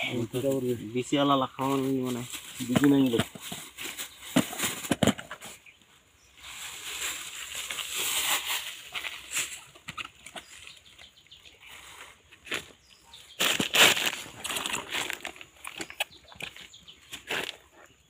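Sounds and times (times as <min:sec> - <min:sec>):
plastic rustling and crinkling: 0:01.6 - 0:05.6, 0:06.4 - 0:10.8, 0:13.3 - 0:17.6.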